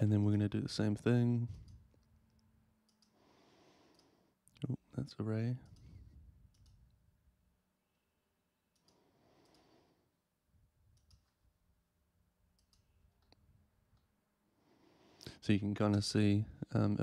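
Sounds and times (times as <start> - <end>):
faint computer mouse clicks: 1.6 - 3.2, 6.5 - 6.8, 8.7 - 9.7, 10.9 - 11.4, 12.6 - 13.4.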